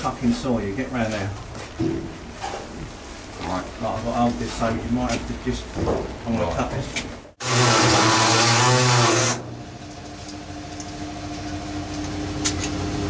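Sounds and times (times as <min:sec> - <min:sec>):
pneumatic air saw cutting steel: 0:07.4 - 0:09.4.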